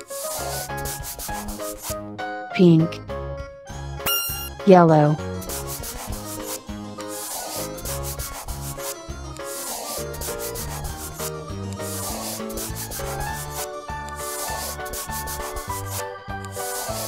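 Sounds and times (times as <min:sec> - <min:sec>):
scratchy rubbing of colouring in: 0:00.0 - 0:02.0, 0:05.4 - 0:17.0
light background music: 0:00.0 - 0:17.0.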